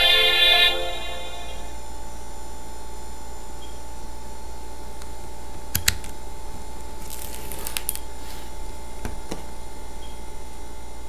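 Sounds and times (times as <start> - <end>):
electrical hum: 0.0 - 11.0
paper rustle: 6.9 - 9.5.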